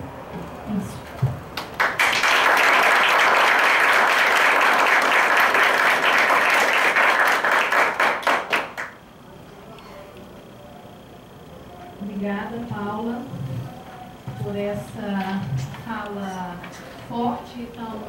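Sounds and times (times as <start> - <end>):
audience applauding: 1.6 - 9.0.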